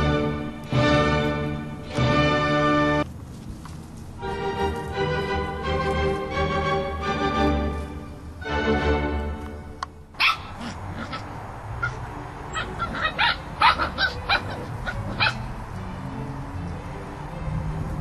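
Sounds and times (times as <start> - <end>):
organ music: 0.0 - 3.1, 4.2 - 10.2
puppies yipping and barking: 10.2 - 15.7.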